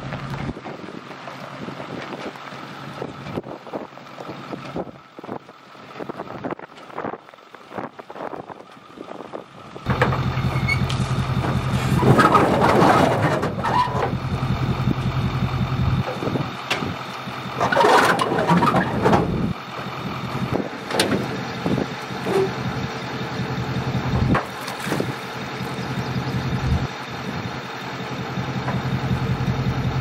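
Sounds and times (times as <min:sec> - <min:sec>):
truck engine idling: 0:00.0 - 0:30.0
boat hull scraping on trailer: 0:09.9 - 0:14.3, 0:17.5 - 0:19.6, 0:20.4 - 0:23.1, 0:23.9 - 0:26.2.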